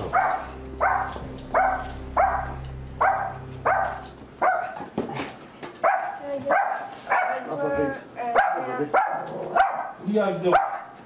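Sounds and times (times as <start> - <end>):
dog barking: 0.1 - 4.8, 5.8 - 7.5, 8.4 - 11.0.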